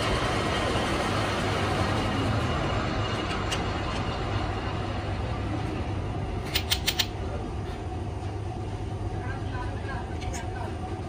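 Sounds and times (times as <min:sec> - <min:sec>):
low machine hum: 0:00.0 - 0:11.0
sharp metallic clicks: 0:06.4 - 0:07.2.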